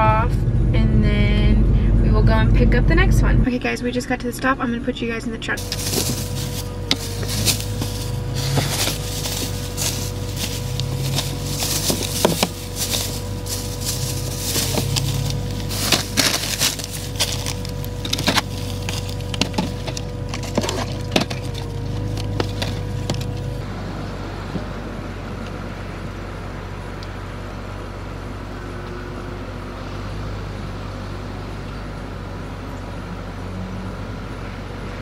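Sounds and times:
steady low hum: 0:00.0 - 0:29.7
clicks and knocks of groceries: 0:05.6 - 0:23.4
plastic bags rustling: 0:05.6 - 0:23.6.

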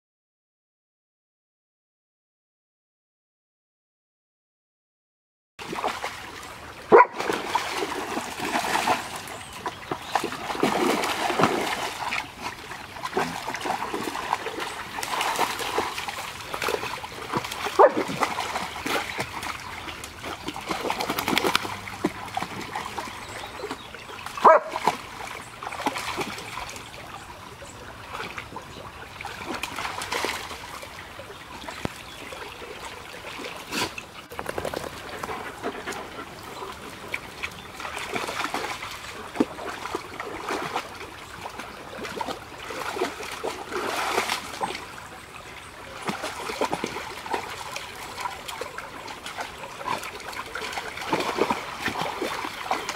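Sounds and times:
dogs splashing through water: 0:05.6 - 0:52.9.

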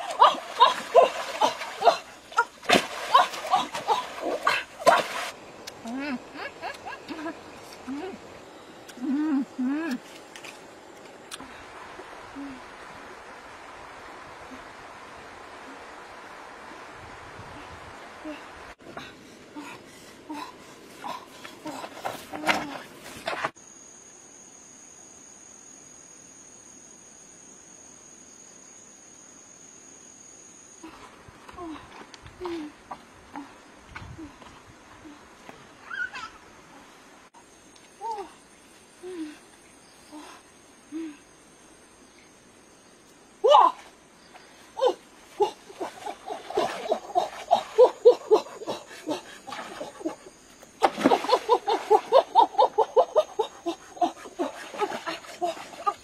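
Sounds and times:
water splash: 0:00.0 - 0:05.4, 0:50.8 - 0:52.2
insects trilling: 0:19.2 - 0:56.0
person laughing: 0:45.4 - 0:50.2, 0:51.1 - 0:56.0.

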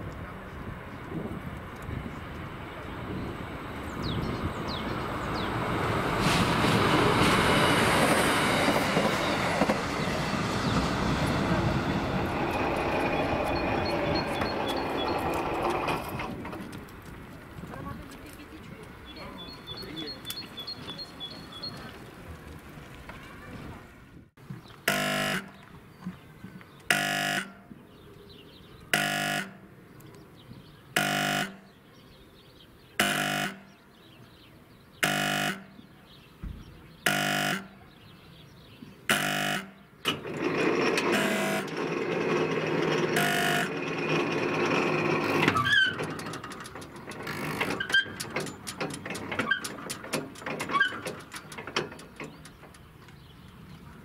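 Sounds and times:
even rushing noise: 0:02.0 - 0:16.8
level crossing warning horn blasts: 0:24.9 - 0:25.6, 0:26.9 - 0:27.7, 0:28.9 - 0:29.7, 0:31.0 - 0:31.7, 0:33.0 - 0:33.8, 0:35.0 - 0:35.8, 0:37.0 - 0:37.9, 0:39.1 - 0:39.9, 0:41.0 - 0:41.8, 0:43.1 - 0:43.8
irregular clicks and knocks: 0:40.0 - 0:53.6.

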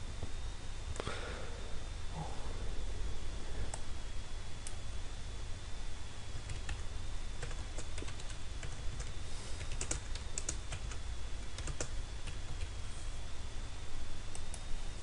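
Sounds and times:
steady low hum: 0:00.0 - 0:15.0
keyboard typing: 0:06.4 - 0:06.8, 0:07.4 - 0:12.7.

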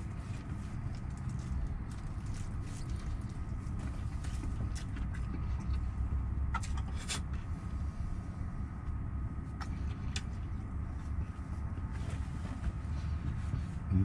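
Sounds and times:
crunchy chewing of fried chicken: 0:00.0 - 0:05.8
low engine rumble: 0:00.0 - 0:14.0.

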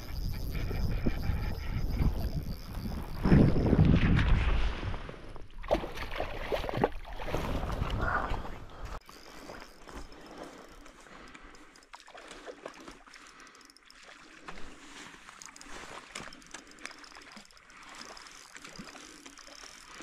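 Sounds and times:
wind rumble on microphone: 0:00.0 - 0:05.5, 0:07.4 - 0:08.9
water splashing and gurgling: 0:00.0 - 0:20.0.

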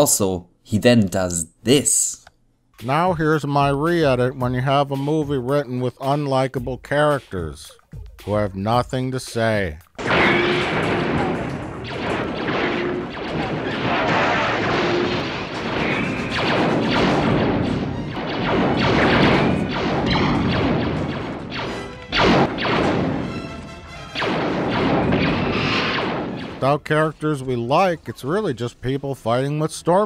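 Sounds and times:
blaster shots: 0:10.0 - 0:26.8
impacts and explosions: 0:10.0 - 0:26.8.

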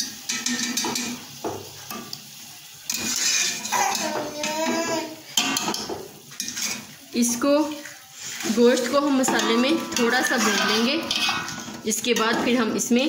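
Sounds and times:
spoon scraping metal pot: 0:02.9 - 0:06.9, 0:07.8 - 0:12.6.

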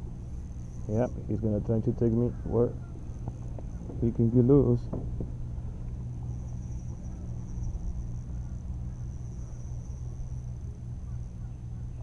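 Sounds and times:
high-pitched insect buzz: 0:00.0 - 0:04.8, 0:05.4 - 0:12.0
wind rumbling on microphone: 0:00.0 - 0:12.0.

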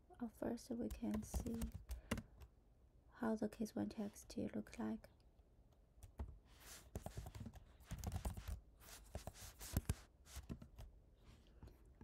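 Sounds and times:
keyboard typing: 0:00.9 - 0:02.5, 0:06.9 - 0:08.6.

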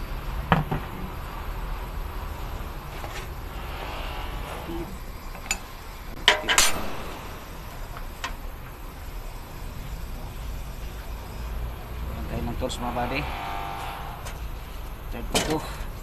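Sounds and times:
low rumble: 0:00.0 - 0:15.2.

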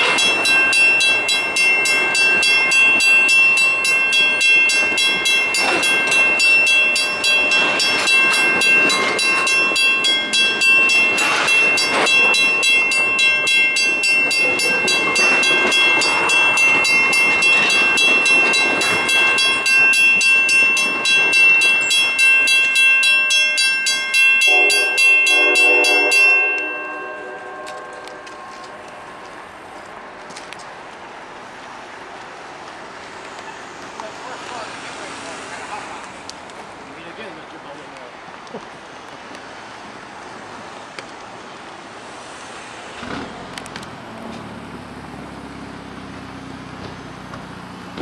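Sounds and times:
train horn: 0:24.4 - 0:29.2.

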